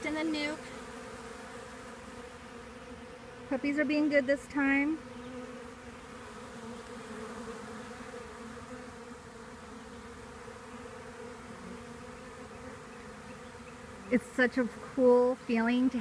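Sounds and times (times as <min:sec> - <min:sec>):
honeybees buzzing: 0:00.0 - 0:16.0.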